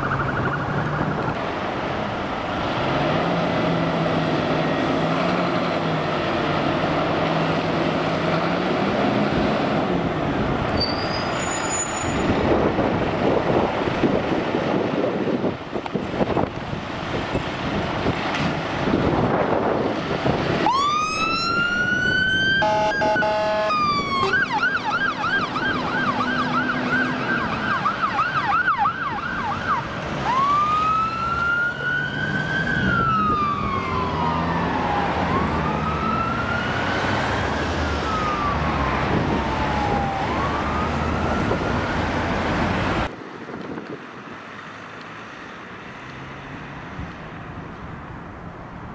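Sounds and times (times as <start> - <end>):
fire engine siren: 0.0 - 1.4, 19.0 - 43.1
horn blast: 22.6 - 24.4.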